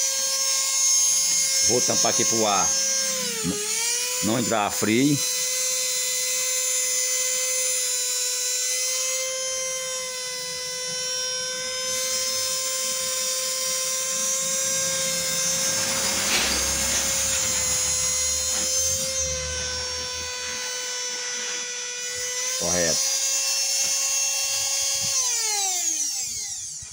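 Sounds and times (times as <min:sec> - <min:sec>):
hair dryer fan motor whine: 0:00.0 - 0:26.9
burst of noise: 0:14.7 - 0:20.0
low rumble: 0:15.5 - 0:20.4.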